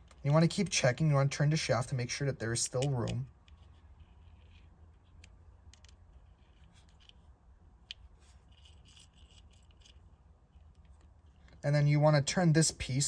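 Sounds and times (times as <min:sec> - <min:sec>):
light handling rubbing: 0:02.5 - 0:11.6
hex key clicking on metal parts: 0:02.6 - 0:03.6.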